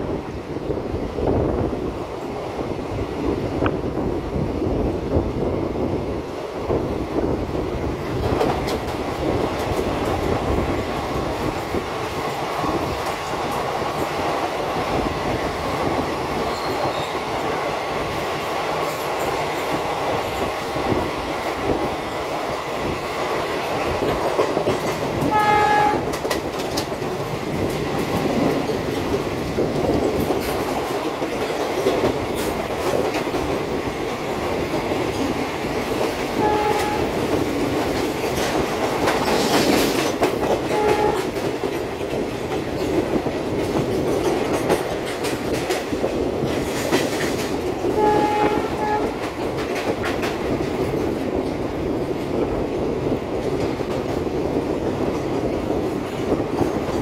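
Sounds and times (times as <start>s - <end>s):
train wheels on rail: 0.0s - 57.0s
locomotive horn toots: 25.2s - 26.2s, 36.4s - 37.2s, 40.7s - 41.4s, 47.9s - 49.2s.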